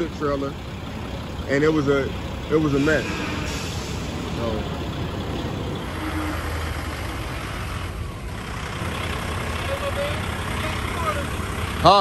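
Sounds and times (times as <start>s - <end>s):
diesel engine running: 0.0s - 12.0s.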